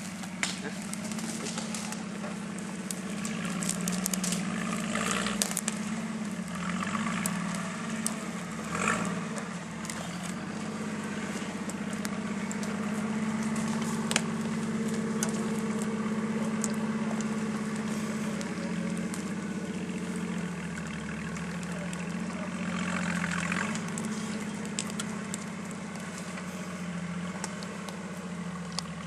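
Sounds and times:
car engine running at low revs: 0:00.0 - 0:29.0
twigs and branches snapping: 0:00.0 - 0:29.0.

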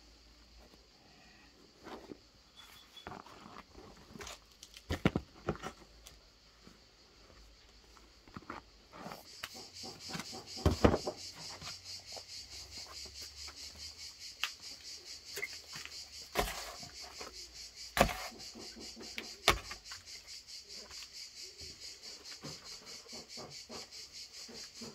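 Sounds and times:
insects buzzing: 0:00.0 - 0:24.9
knocks and cracks of bread loaves: 0:04.4 - 0:06.1, 0:09.4 - 0:11.5, 0:15.8 - 0:20.0.

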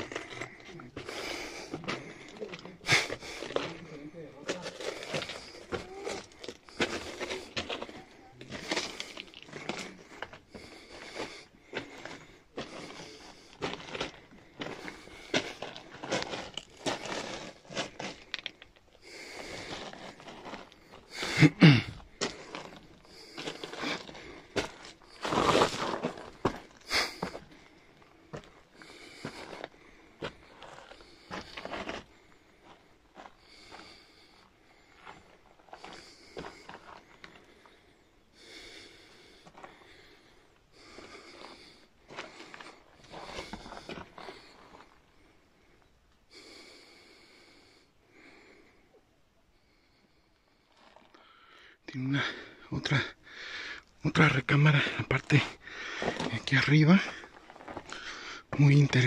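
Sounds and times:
footsteps crunching on loose rock: 0:00.0 - 0:33.9, 0:40.8 - 0:45.0, 0:54.6 - 0:59.0
person breathing heavily: 0:00.0 - 0:59.0
person grunting: 0:05.7 - 0:06.4, 0:21.2 - 0:22.0.

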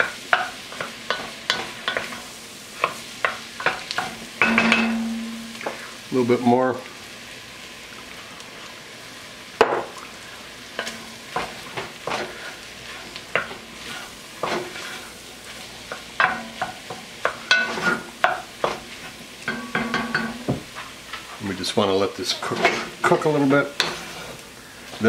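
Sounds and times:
low sizzle of cooking: 0:00.0 - 0:25.0
wooden spoon scraping a pot: 0:10.8 - 0:16.7, 0:17.3 - 0:19.1, 0:22.2 - 0:24.4.

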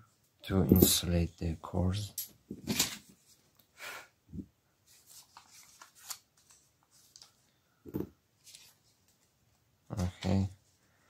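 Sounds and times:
paper rustling: 0:04.8 - 0:07.4, 0:08.4 - 0:09.3.

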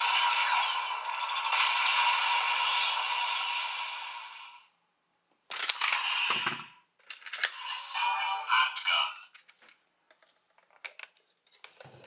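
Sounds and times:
toy blaster electronic sound: 0:00.0 - 0:04.5
plastic toy mechanism clicking: 0:05.5 - 0:07.6.

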